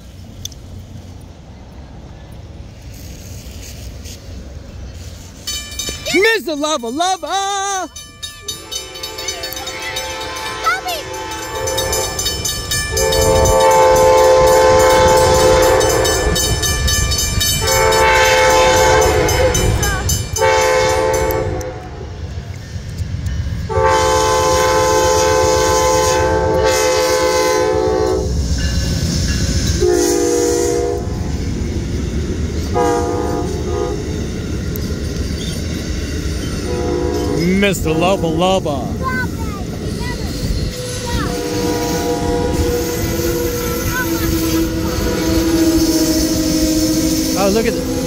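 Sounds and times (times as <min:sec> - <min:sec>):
train rumbling past: 0:00.0 - 0:48.0
train air horn blasts: 0:08.6 - 0:16.7, 0:17.5 - 0:22.2, 0:23.7 - 0:28.4, 0:29.7 - 0:31.3, 0:32.7 - 0:34.1, 0:36.6 - 0:38.4, 0:40.5 - 0:48.0.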